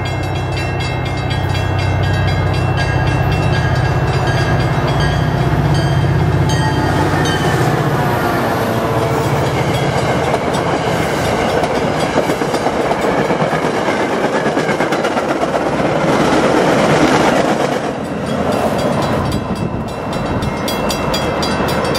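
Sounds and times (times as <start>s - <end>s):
crossing bell ringing: 0.0s - 15.2s, 17.5s - 21.9s
train wheels clattering on rails: 9.1s - 21.9s.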